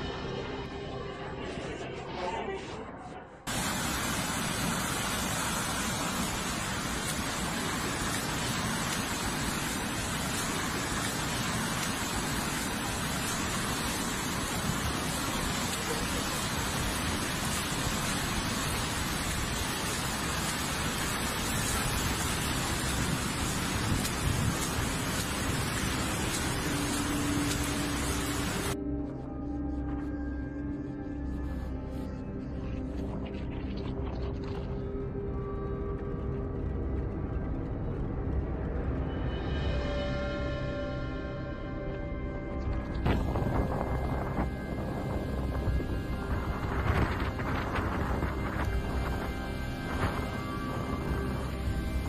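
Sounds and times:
torrent of water rushing: 3.5 - 28.8, 43.0 - 52.0.

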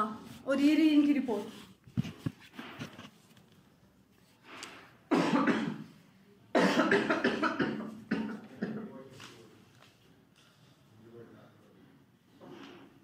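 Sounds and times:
man coughing hard: 5.1 - 5.9, 6.5 - 9.0.

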